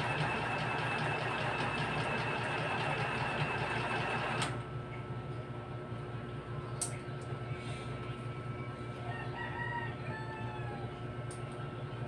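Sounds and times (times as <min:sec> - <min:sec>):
sewing machine running: 0:00.0 - 0:04.6.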